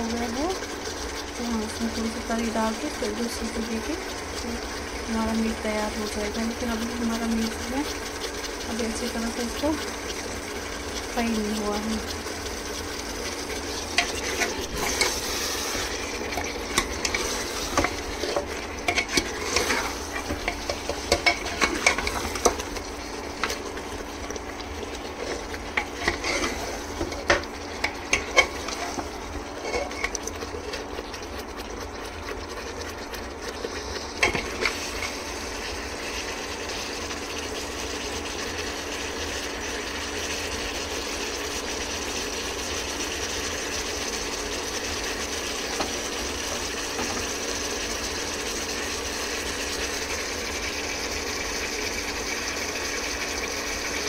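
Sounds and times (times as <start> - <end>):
meat sizzling in oil: 0.0 - 54.0
spoon scraping and clinking pot: 29.6 - 30.2.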